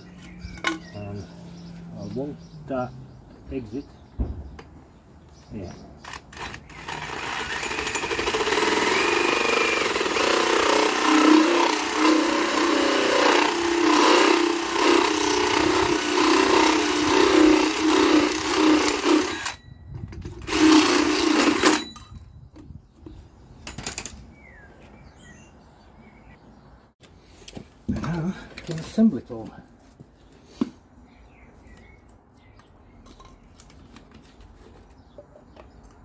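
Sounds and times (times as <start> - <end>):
cordless power drill drilling: 6.1 - 19.6, 20.4 - 21.8.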